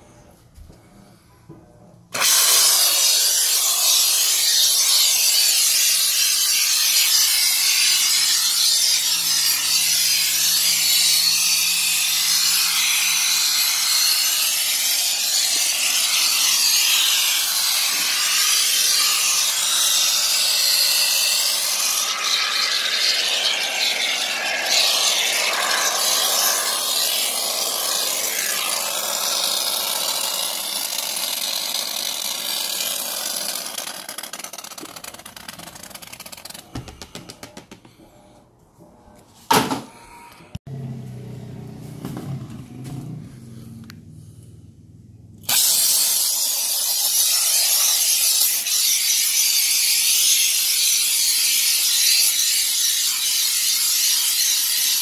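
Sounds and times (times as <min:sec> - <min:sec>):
aerosol spray foam hissing: 0:02.2 - 0:31.8, 0:45.5 - 0:55.0.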